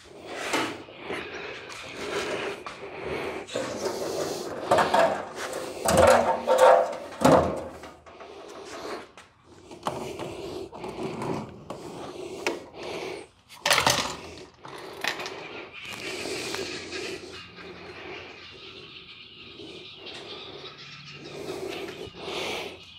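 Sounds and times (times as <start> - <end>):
metal panel scraping: 3.4 - 9.1.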